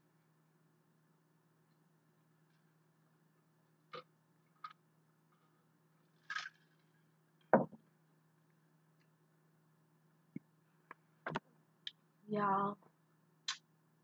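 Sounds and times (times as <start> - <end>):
plastic cup knocks and clicks: 7.5 - 7.8.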